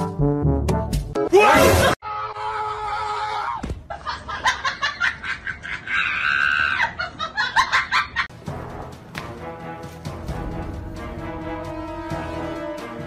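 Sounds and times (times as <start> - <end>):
high scream: 1.4 - 3.6.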